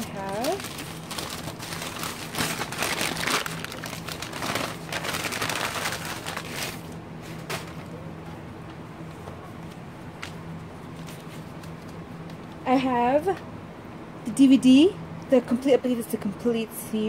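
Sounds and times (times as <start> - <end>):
packing paper crumpling: 0.0 - 7.8.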